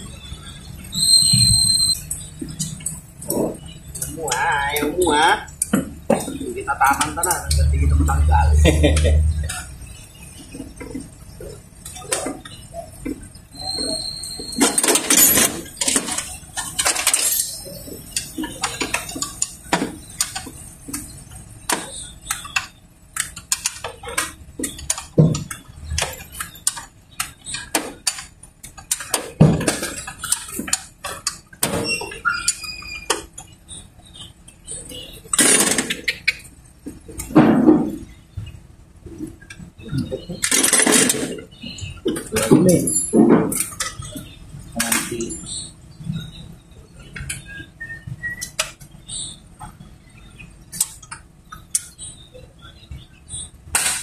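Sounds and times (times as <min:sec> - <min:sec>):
tools clinking on engine parts: 0:14.4 - 0:20.6, 0:40.3 - 0:45.6.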